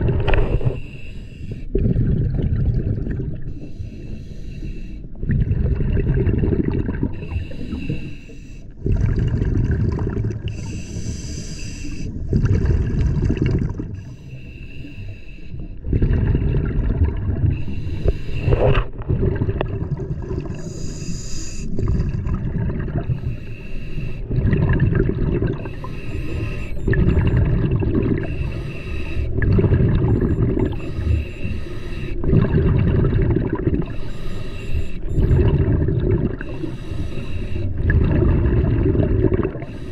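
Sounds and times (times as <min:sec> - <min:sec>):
exhaled bubbles rumbling: 0:00.0 - 0:03.9, 0:05.0 - 0:14.4, 0:15.6 - 0:21.0, 0:21.6 - 0:39.9
regulator hissing inhalations: 0:00.6 - 0:01.7, 0:03.6 - 0:05.0, 0:07.2 - 0:08.6, 0:10.5 - 0:12.1, 0:17.6 - 0:18.6, 0:20.6 - 0:21.8, 0:23.2 - 0:24.3, 0:25.6 - 0:26.8, 0:28.2 - 0:29.4, 0:30.6 - 0:32.2, 0:33.9 - 0:35.3, 0:36.4 - 0:37.8, 0:39.6 - 0:39.9.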